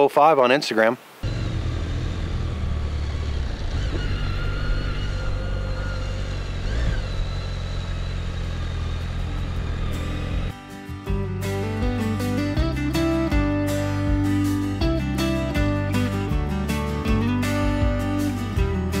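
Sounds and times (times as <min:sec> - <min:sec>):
motorcycle engine running: 0:01.2 - 0:10.6.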